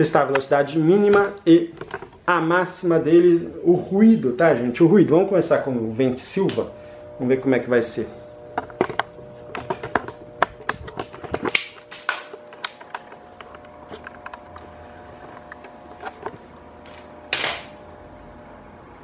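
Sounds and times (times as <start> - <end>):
wall fan motor humming: 0.0 - 19.0.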